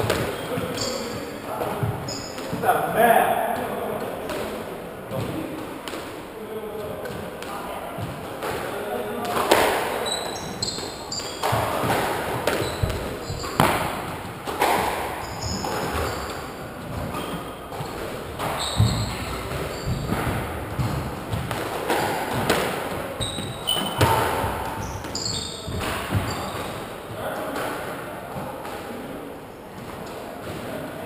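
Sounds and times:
shoes squeaking on wooden floor: 0.0s - 3.0s, 9.2s - 27.4s
squash ball hitting rackets and walls: 0.0s - 29.1s.

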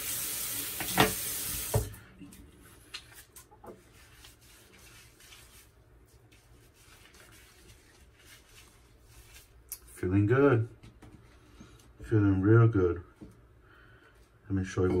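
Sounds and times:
tap running into sink: 0.5s - 2.0s
hands rubbing lather on face: 2.8s - 10.0s.

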